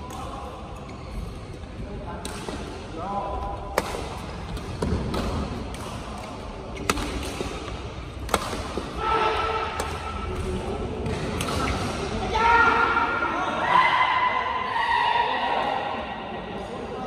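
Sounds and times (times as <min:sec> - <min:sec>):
rackets striking shuttlecock: 0:03.6 - 0:12.1.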